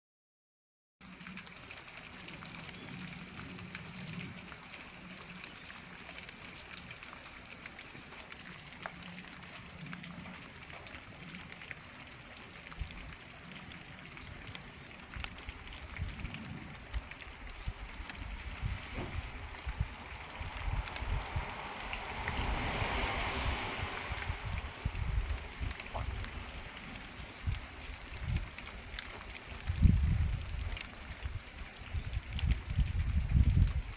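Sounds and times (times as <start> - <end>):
low rumbling: 15.8 - 28.6.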